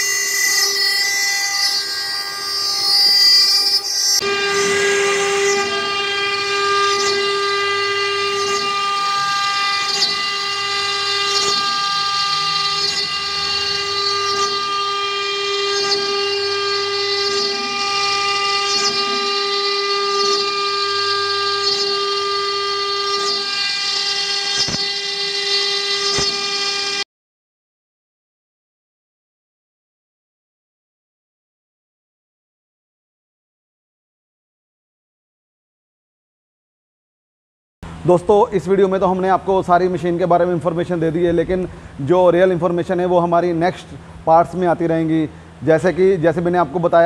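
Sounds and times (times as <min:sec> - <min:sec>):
router spindle high whine: 0:00.0 - 0:27.1, 0:37.8 - 0:47.0.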